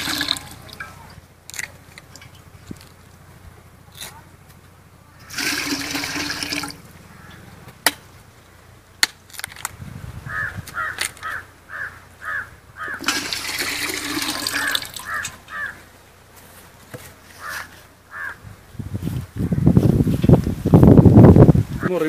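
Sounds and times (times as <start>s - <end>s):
water pouring into metal pot: 0.0s - 0.6s, 5.3s - 6.8s, 13.0s - 15.1s
bird calling: 6.9s - 7.7s, 10.2s - 13.2s, 14.3s - 16.0s, 17.3s - 18.5s.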